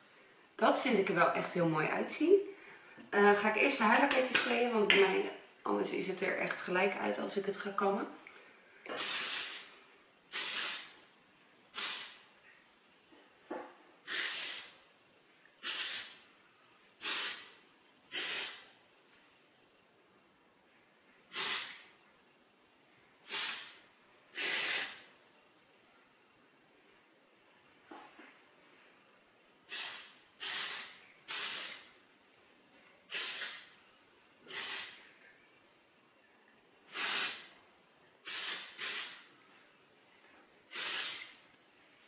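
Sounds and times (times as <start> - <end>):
aerosol spray bursts: 8.9 - 11.0, 11.7 - 12.2, 14.0 - 14.8, 15.6 - 16.2, 17.0 - 18.7, 21.3 - 21.9, 23.2 - 25.1, 29.6 - 32.0, 33.1 - 33.7, 34.5 - 35.0, 36.9 - 37.5, 38.2 - 39.3, 40.7 - 41.4.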